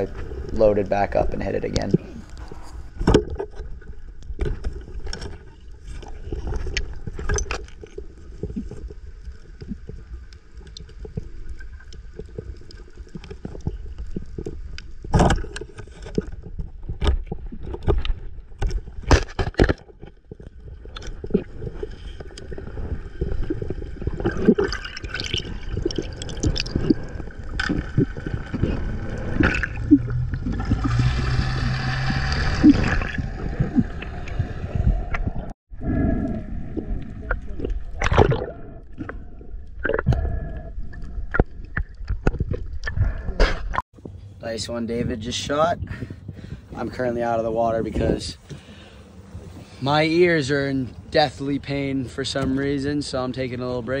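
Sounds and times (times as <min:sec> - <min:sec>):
rush of water and bubbles: 0:02.9 - 0:43.8
muffled underwater rumble: 0:20.0 - 0:49.8.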